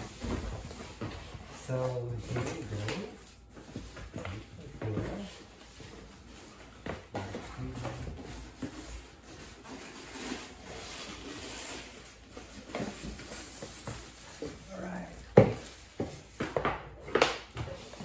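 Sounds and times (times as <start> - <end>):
cardboard and plastic packaging rustling: 0.0 - 18.0.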